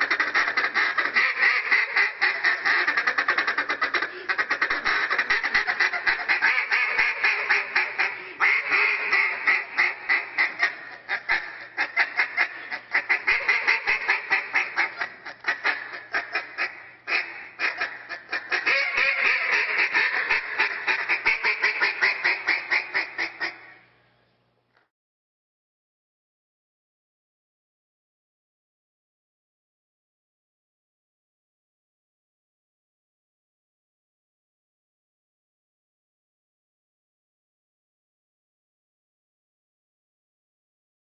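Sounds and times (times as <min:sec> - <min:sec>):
duck call rapid quacks: 0:00.0 - 0:23.8.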